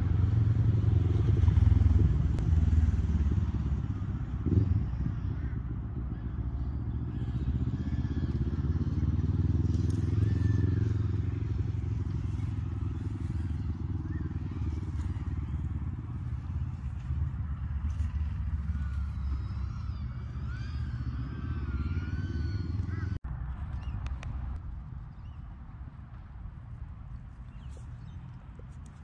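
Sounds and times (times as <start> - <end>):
vehicle engine running: 0.0 - 29.0.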